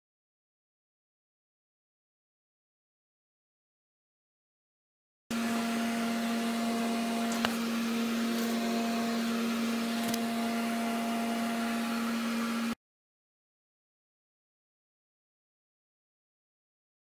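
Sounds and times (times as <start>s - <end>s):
steady machine hum: 5.3s - 12.8s.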